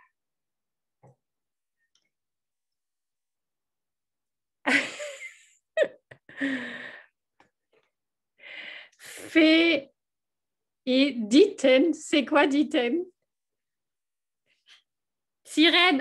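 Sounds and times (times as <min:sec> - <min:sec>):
woman laughing: 0:04.7 - 0:06.6.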